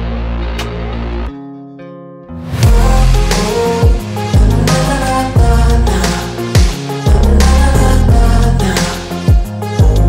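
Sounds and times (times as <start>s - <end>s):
electronic beat with sliding bass: 2.6s - 10.0s.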